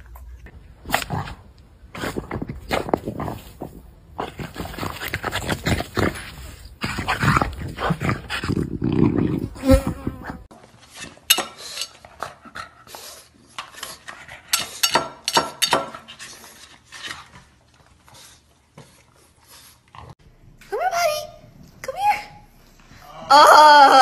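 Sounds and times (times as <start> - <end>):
dogs snorting and snuffling: 0.4 - 15.0.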